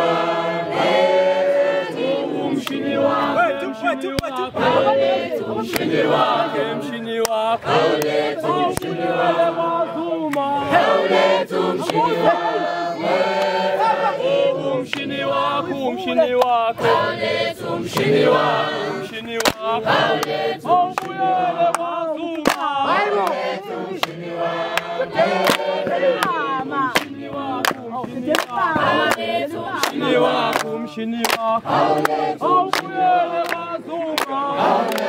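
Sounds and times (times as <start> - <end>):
crowd chanting in chorus: 0.0 - 35.0
sharp hand claps: 2.6 - 2.8, 5.7 - 5.9, 7.2 - 9.0, 10.2 - 10.5, 14.9 - 15.1, 16.4 - 16.6, 19.3 - 23.4, 24.0 - 35.0.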